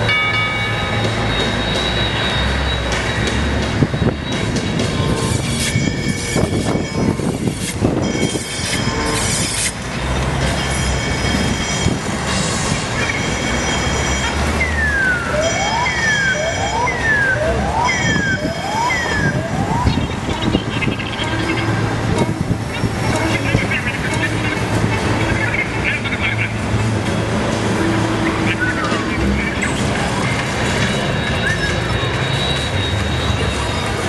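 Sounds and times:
siren-like wails: 13.1 - 24.6.

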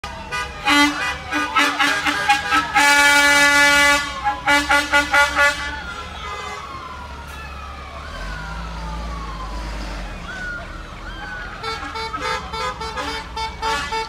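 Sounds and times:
siren wailing: 0.0 - 14.0
truck engine rumbling: 0.0 - 14.0
vehicle horns honking: 0.2 - 6.7, 11.6 - 14.0.

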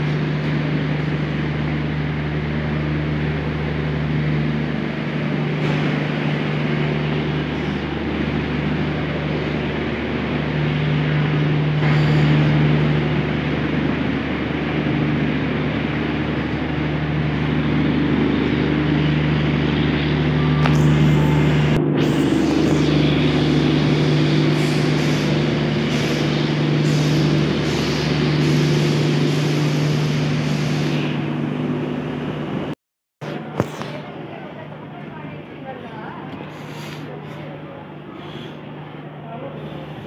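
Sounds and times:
engine drone with hiss: 0.0 - 40.0.

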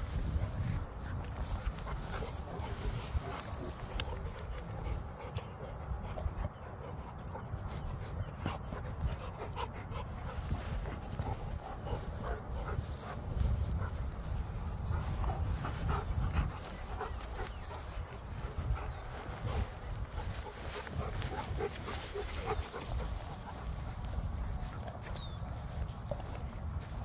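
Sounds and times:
dogs panting: 0.0 - 27.0
steady low rumble: 0.0 - 27.0
small clicks and scuffs: 0.1 - 5.3.

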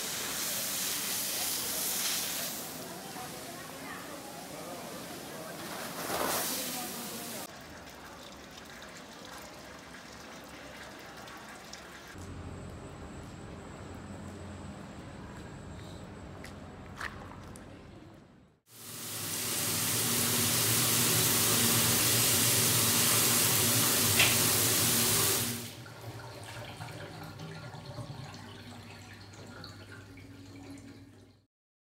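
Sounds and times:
shower running: 0.0 - 12.2, 18.7 - 31.5.

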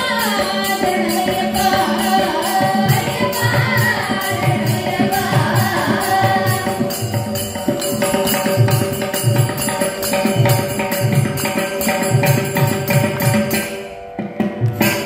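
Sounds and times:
women singing: 0.0 - 7.4
small hand cymbals: 0.0 - 13.9
hand drum rhythm: 0.0 - 15.0.

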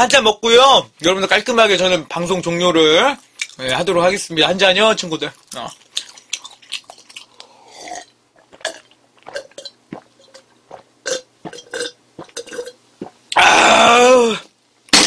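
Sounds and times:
person gulping drink: 6.0 - 13.8.

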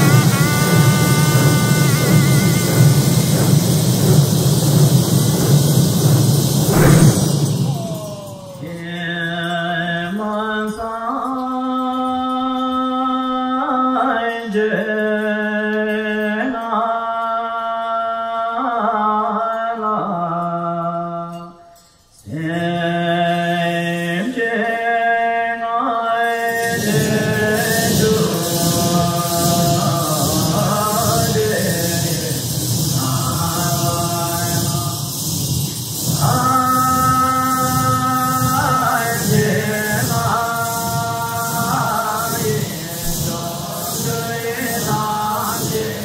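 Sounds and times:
slow chanted melody: 0.0 - 3.5, 26.2 - 46.0
hand drums rattling: 0.0 - 10.3, 26.4 - 46.0
hand bells ringing: 6.7 - 18.6, 20.2 - 24.8, 26.3 - 46.0.

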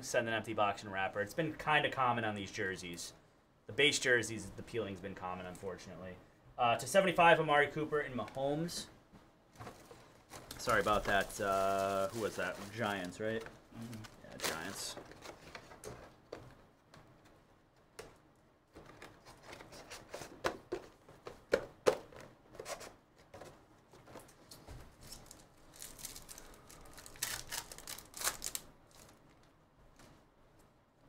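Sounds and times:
trading cards clicking and rustling: 9.6 - 29.2
foil wrapper crinkling: 10.4 - 15.4, 25.0 - 29.5.

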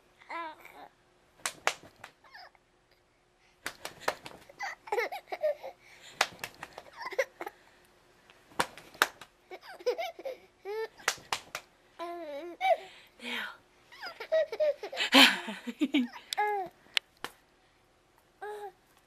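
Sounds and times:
baby laughing and squealing: 6.9 - 7.5, 9.5 - 11.1, 13.9 - 15.3.

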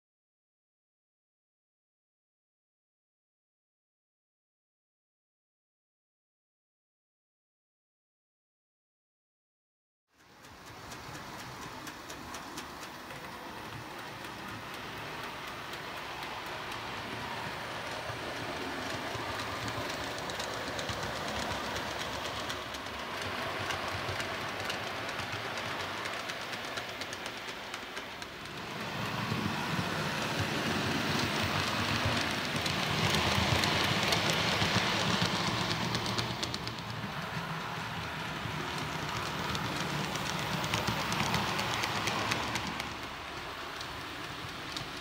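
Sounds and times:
model train rumbling on track: 10.2 - 45.0
wheels clicking over rail: 10.2 - 45.0.

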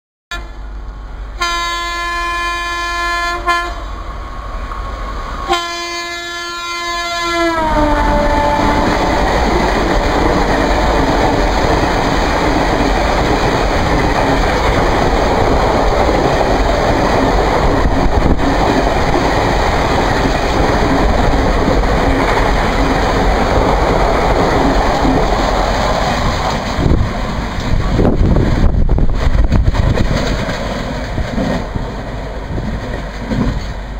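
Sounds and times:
train wheels rushing on rails: 0.5 - 33.9
locomotive horn blasts: 1.4 - 3.9, 5.5 - 9.3.

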